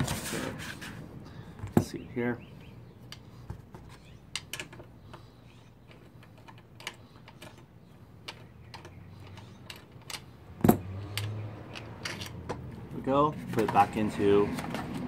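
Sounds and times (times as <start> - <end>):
socket wrench clicking: 5.8 - 10.3
loose bolt rattling: 5.8 - 12.9.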